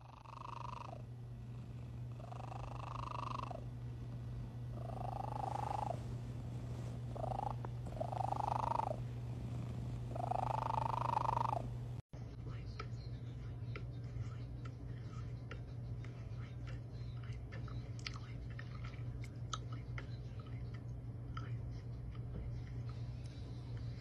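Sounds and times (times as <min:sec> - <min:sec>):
cat purring: 0:00.0 - 0:12.0.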